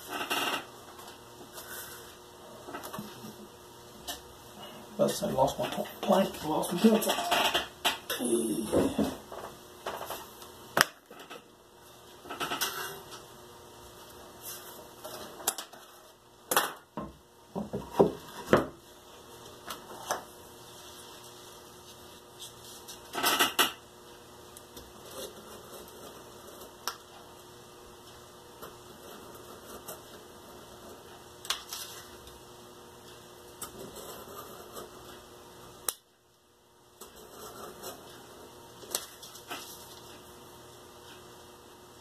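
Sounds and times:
tools knocking on desk: 17.0s - 18.8s.

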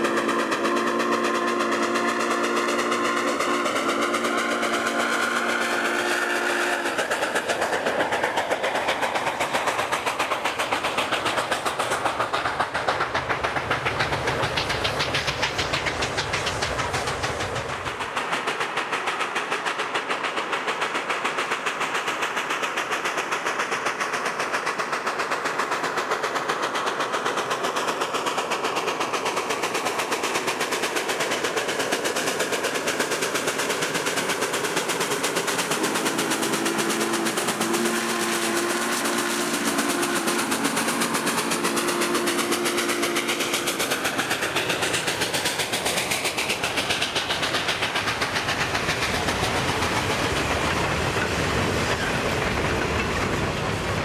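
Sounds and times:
steam whistle blast: 0.0s - 7.0s, 35.7s - 43.3s
steam locomotive chuffing: 0.0s - 54.0s.

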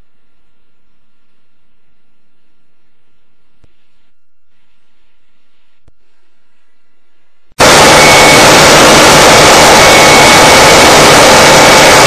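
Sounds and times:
faint high whine: 0.0s - 12.0s
loud distorted rushing noise: 7.6s - 12.0s.

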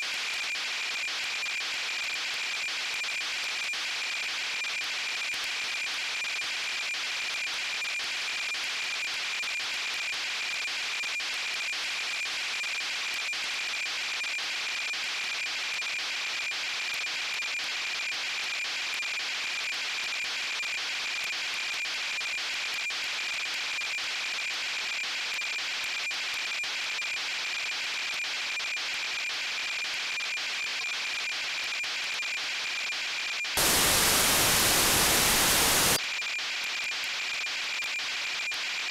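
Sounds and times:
radio static hiss: 33.6s - 36.0s.

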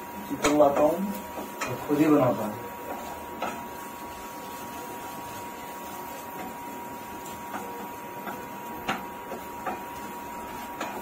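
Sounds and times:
frying sizzle: 0.0s - 11.0s
spatula knocking against pan: 7.4s - 11.0s.

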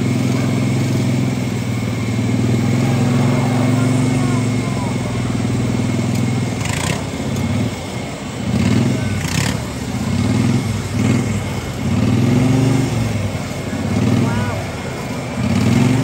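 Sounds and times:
lawn mower engines revving: 0.0s - 16.0s.

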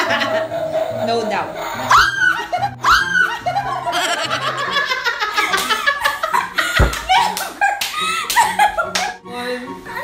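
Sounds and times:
background music: 0.0s - 10.0s
women shrieking and laughing: 1.8s - 8.7s.

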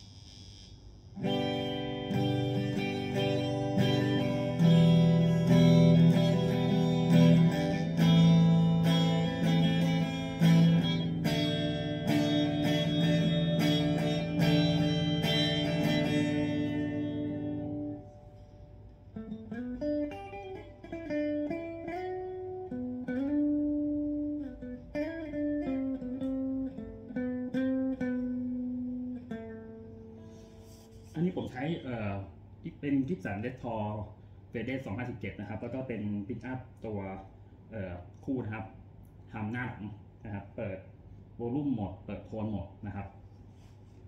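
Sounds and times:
electric guitar single-note phrases: 0.1s - 30.8s
electric guitar strummed chords: 1.2s - 30.3s.

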